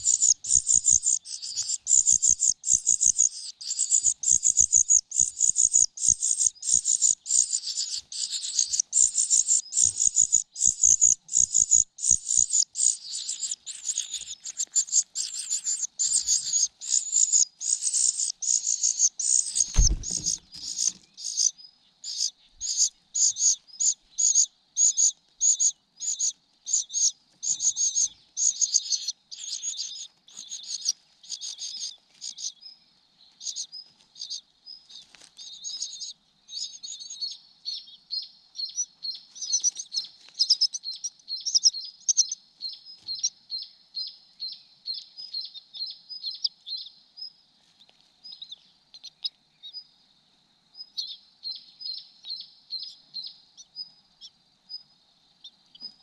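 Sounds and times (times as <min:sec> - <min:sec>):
chick begging calls: 0:00.0 - 0:32.5.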